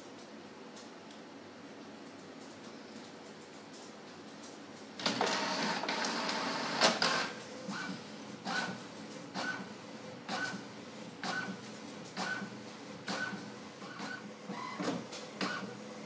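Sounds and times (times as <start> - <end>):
print carriage short whirs: 5.0 - 9.7, 10.3 - 15.9
printer mechanical whirring: 5.0 - 16.0.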